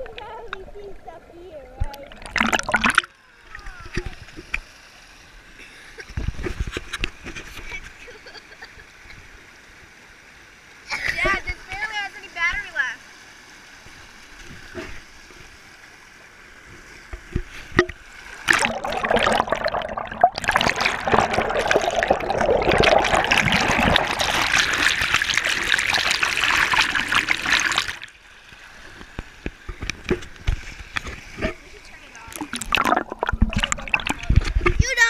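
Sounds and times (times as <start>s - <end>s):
water rushing over rocks: 1.8s - 4.2s, 17.6s - 35.0s
underwater churning bubbling water: 1.9s - 3.1s, 17.7s - 28.2s, 32.3s - 34.8s.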